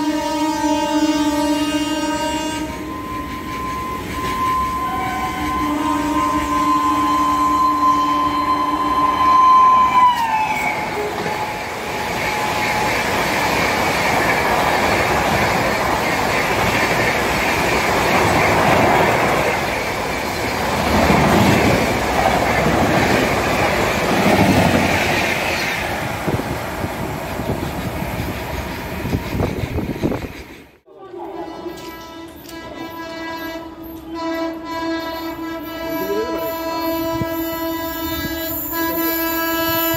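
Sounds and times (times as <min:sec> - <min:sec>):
train horn: 0:00.0 - 0:13.2, 0:30.9 - 0:39.9
train coaches rumbling past: 0:00.0 - 0:39.9
train wheel clatter: 0:10.0 - 0:30.8.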